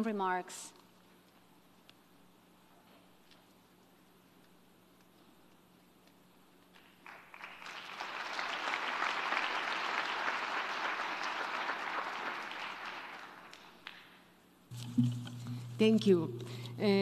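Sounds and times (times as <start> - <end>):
audience applauding: 6.8 - 14.2.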